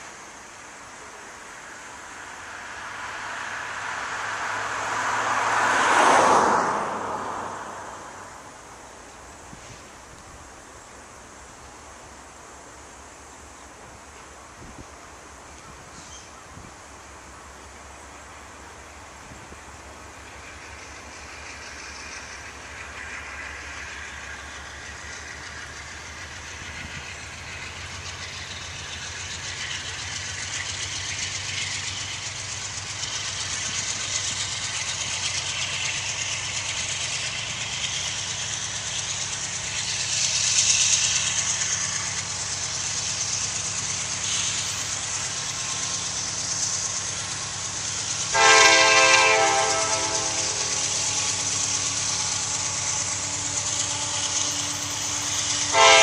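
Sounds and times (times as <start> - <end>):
diesel locomotive engine barking: 19.7 - 56.0
locomotive air horn: 48.3 - 51.6, 53.0 - 56.0.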